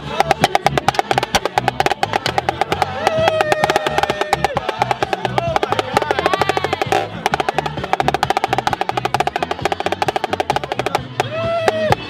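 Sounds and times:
music track with bass line: 0:00.0 - 0:12.0
other percussion: 0:00.0 - 0:12.0
snare drum fast rhythm: 0:00.0 - 0:12.0
voices shouting: 0:02.0 - 0:07.9.

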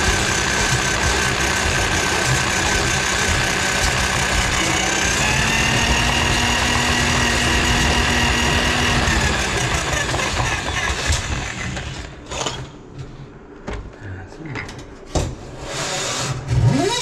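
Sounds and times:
drain auger motor whine: 0:00.0 - 0:12.2.

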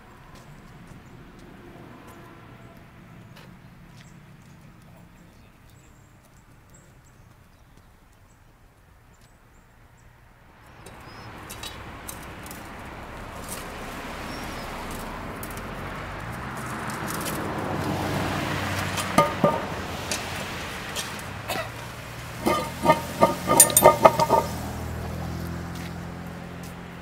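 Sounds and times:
road traffic passing: 0:00.0 - 0:09.1, 0:09.7 - 0:27.0
metallic clanks of manhole cover: 0:10.8 - 0:11.8, 0:18.8 - 0:24.8.

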